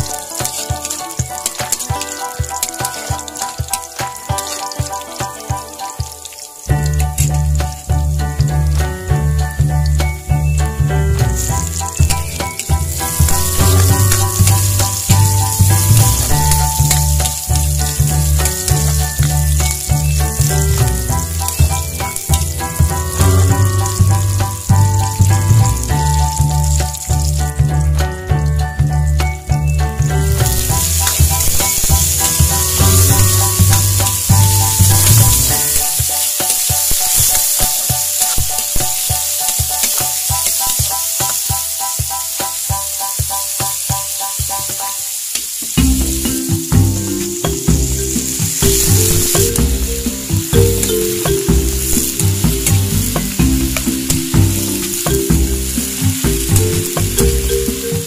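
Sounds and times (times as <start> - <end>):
stirring clicks and scrapes: 0.0 - 5.9
vegetables sizzling in pan: 0.0 - 27.7, 28.8 - 58.0
background music: 0.0 - 58.0.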